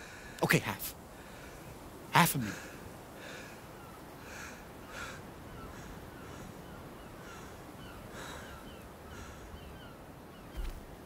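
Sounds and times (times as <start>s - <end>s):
harsh bird calls: 3.7s - 11.0s
falling bird chirps: 9.6s - 10.9s.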